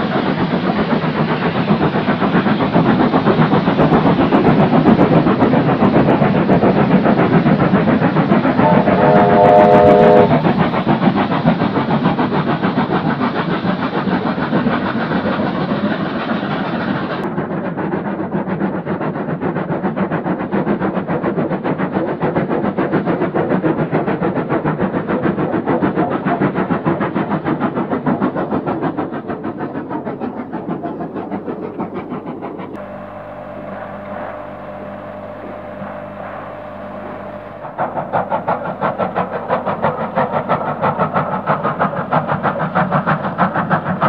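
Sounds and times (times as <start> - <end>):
steam train chugging: 0.0 - 44.0
steady hum: 8.4 - 10.8, 32.7 - 41.6.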